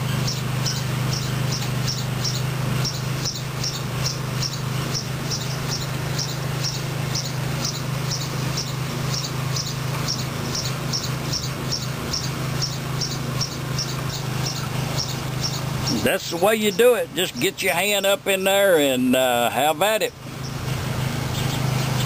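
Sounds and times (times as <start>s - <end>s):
steady low hum: 0.0s - 22.0s
insect chirping: 0.1s - 16.9s.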